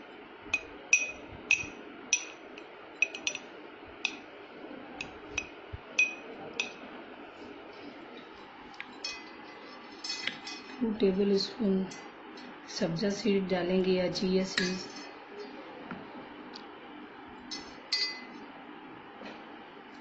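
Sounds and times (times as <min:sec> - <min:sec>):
spoon clinking in glass: 0:03.0 - 0:03.5, 0:05.0 - 0:06.8, 0:14.6 - 0:15.2, 0:17.5 - 0:18.4.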